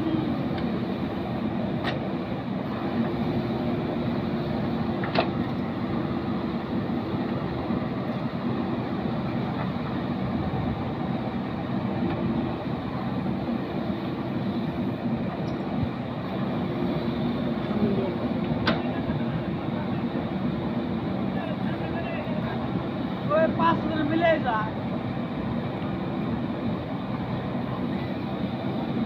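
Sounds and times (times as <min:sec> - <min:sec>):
backhoe digging and dumping soil: 0:00.0 - 0:19.0
diesel engine running under load: 0:00.0 - 0:29.0.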